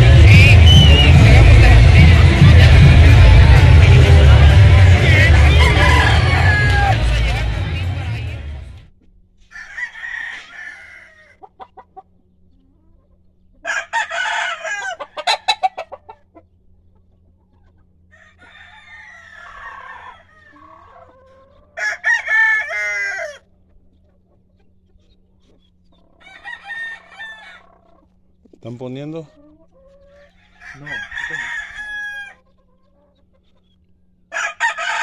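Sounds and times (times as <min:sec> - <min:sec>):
roosters crowing: 0:00.0 - 0:08.6, 0:09.4 - 0:12.0, 0:13.6 - 0:16.3, 0:18.0 - 0:23.7, 0:25.9 - 0:28.2, 0:28.8 - 0:33.3, 0:34.1 - 0:35.0
chicken clucking: 0:08.9 - 0:35.0.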